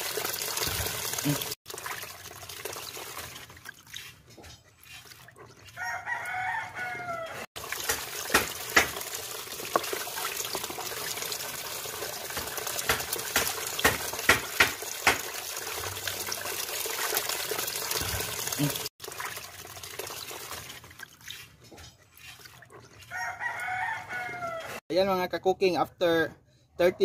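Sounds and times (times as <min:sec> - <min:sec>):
hands washing chicken: 0:00.0 - 0:24.8
rooster crowing: 0:05.8 - 0:07.5, 0:23.1 - 0:24.8
tap water splashing into basin: 0:07.6 - 0:21.0.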